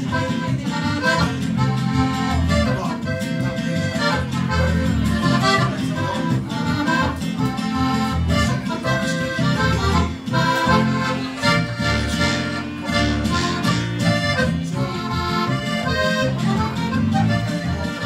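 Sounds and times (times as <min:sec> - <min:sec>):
accordion playing: 0:00.0 - 0:18.0.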